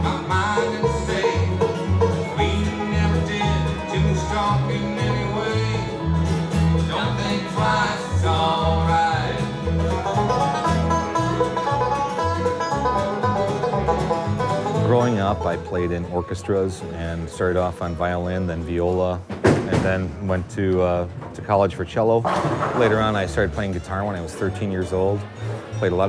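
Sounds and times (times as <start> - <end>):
man singing: 0.0 - 9.7
strummed acoustic guitar: 0.0 - 19.2, 22.3 - 26.0
rolling banjo: 0.0 - 26.0
upright bass plucking: 0.0 - 26.0.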